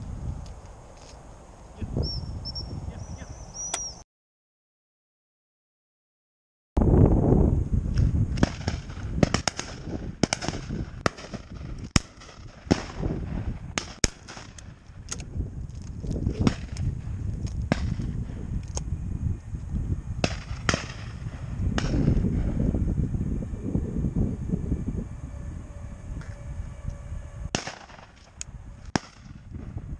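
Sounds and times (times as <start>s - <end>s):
shotgun shots: 8.4s - 13.1s, 20.2s - 22.2s, 27.5s - 28.3s, 28.9s - 29.4s
low rumble: 14.6s - 29.9s.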